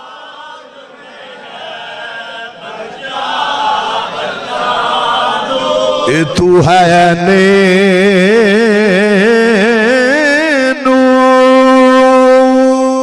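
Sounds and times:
men chanting together: 0.0s - 8.6s.

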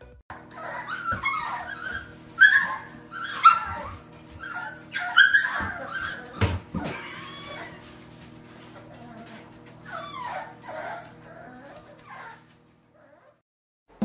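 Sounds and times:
puppies whining and yelping: 0.3s - 13.4s.

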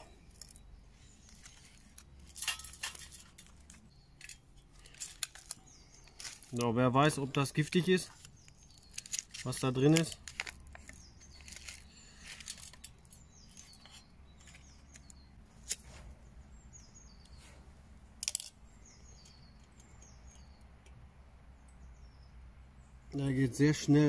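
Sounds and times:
small birds chirping: 0.0s - 24.0s
foil wrapper crinkling: 0.2s - 15.8s.

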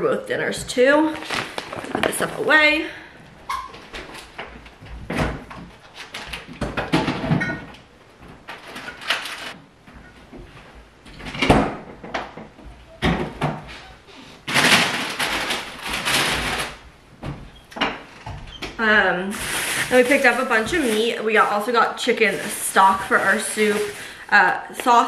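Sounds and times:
doors and drawers knocking: 4.8s - 9.2s, 11.1s - 13.7s.

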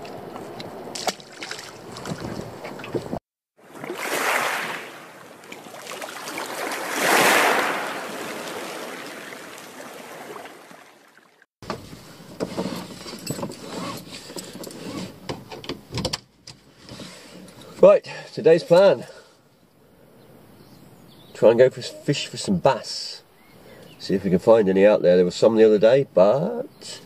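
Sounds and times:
seatbelt rustling and buckling: 11.6s - 17.8s.

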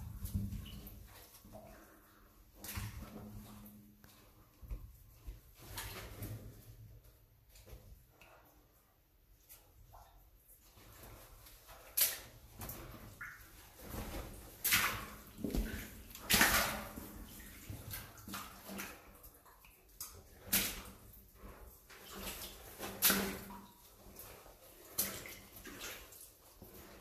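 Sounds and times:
footsteps splashing through water: 0.0s - 6.7s, 10.8s - 27.0s.

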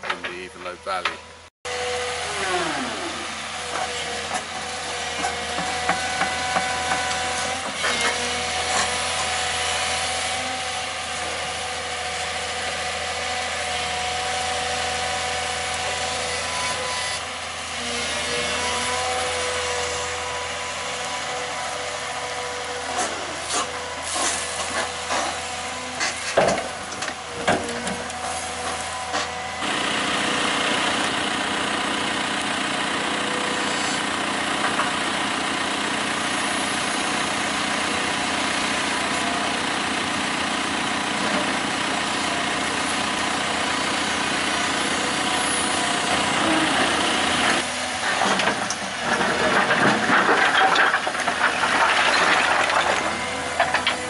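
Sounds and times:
excavator diesel engine running: 0.0s - 54.0s
stones clattering into skip: 49.2s - 54.0s.

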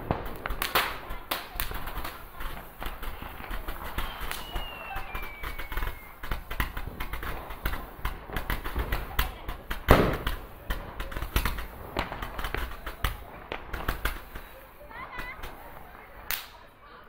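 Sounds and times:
loud firework bang: 0.0s - 16.6s
fireworks popping and crackling: 0.0s - 17.0s
people's voices: 0.0s - 17.0s
firework whistle falling in pitch: 4.0s - 6.2s.

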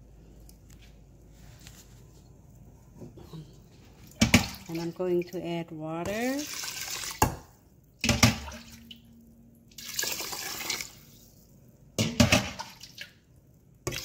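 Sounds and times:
water pouring over rice: 9.7s - 11.5s.

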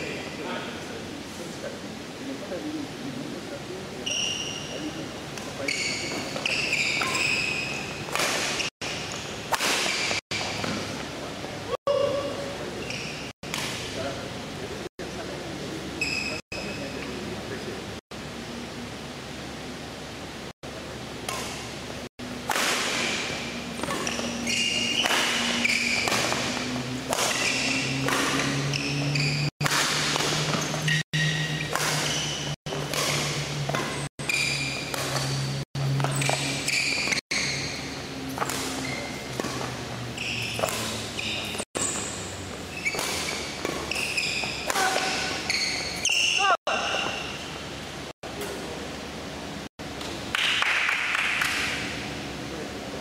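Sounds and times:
shoes squeaking on court: 4.0s - 11.1s, 12.6s - 13.9s, 15.9s - 17.2s, 22.8s - 47.6s.

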